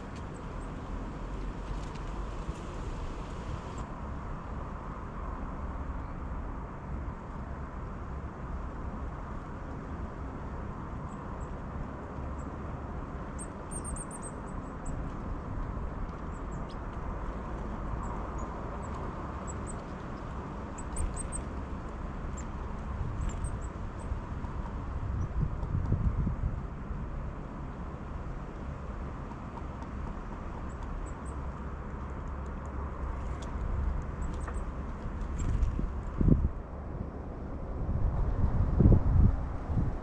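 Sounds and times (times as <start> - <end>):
steady low rumble: 32.8 - 40.0.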